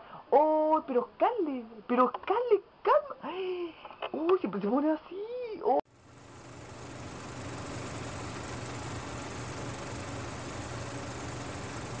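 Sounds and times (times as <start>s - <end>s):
mechanical drone with hum and hiss: 5.9s - 12.0s.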